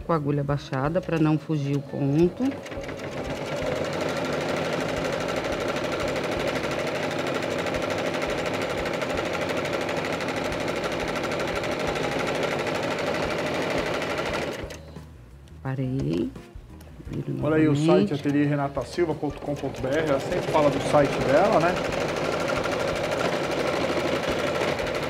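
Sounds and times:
sewing machine stitching: 0:01.2 - 0:14.8, 0:18.1 - 0:25.0.

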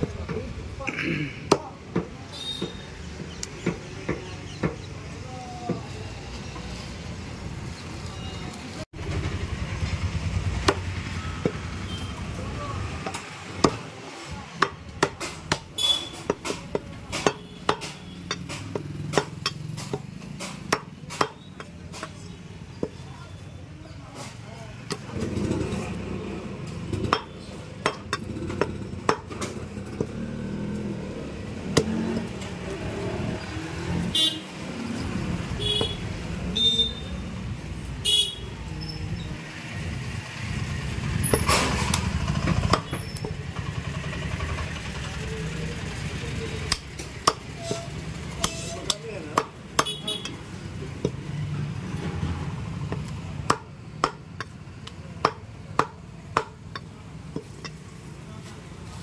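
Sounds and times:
road traffic: 0:00.0 - 0:59.0
vehicle horns tooting: 0:02.3 - 0:03.0, 0:11.1 - 0:12.4, 0:15.7 - 0:16.3, 0:34.0 - 0:34.6, 0:35.4 - 0:37.2, 0:38.0 - 0:38.7, 0:47.5 - 0:49.0, 0:49.8 - 0:50.6
cleaver chopping meat: 0:12.9 - 0:23.1, 0:26.6 - 0:30.3, 0:46.6 - 0:47.6, 0:48.2 - 0:51.3, 0:52.8 - 0:57.8.

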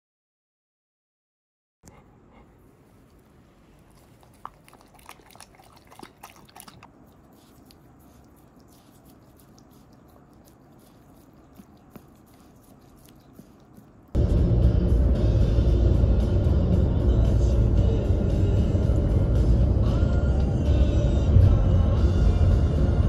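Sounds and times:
dog eating wet smacks: 0:01.9 - 0:14.2.

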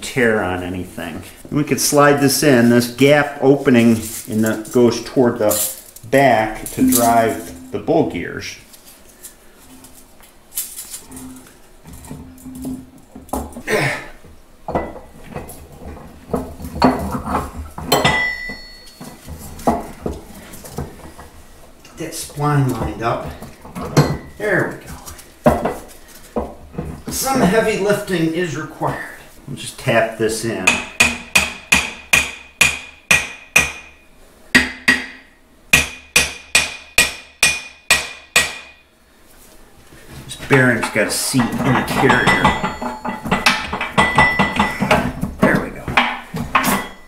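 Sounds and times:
heavy steel parts clinking: 0:03.7 - 0:07.8, 0:14.7 - 0:21.2, 0:22.6 - 0:25.2, 0:40.5 - 0:47.0
metallic ring: 0:17.9 - 0:19.3, 0:42.0 - 0:44.8, 0:46.6 - 0:47.0
hammer tapping metal: 0:17.9 - 0:19.9, 0:30.6 - 0:34.0, 0:34.6 - 0:38.8, 0:42.0 - 0:45.1.

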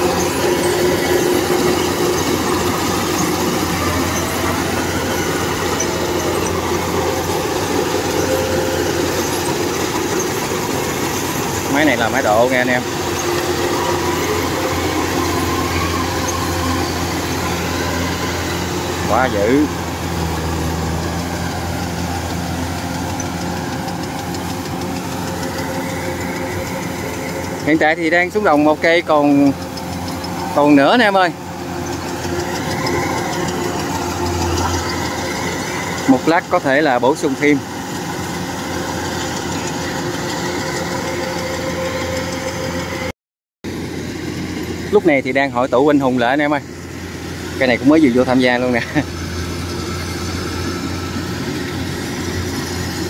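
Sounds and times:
combine harvester engine drone: 0:00.0 - 0:43.1, 0:43.7 - 0:53.0.

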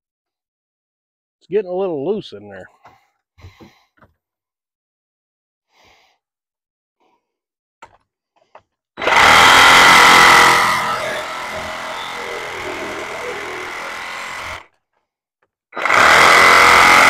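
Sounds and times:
power tool whining: 0:09.0 - 0:14.7, 0:15.8 - 0:17.0.

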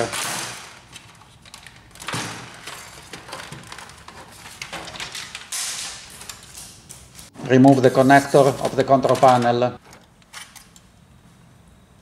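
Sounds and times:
plastic cover scraping and clattering: 0:00.0 - 0:06.5.

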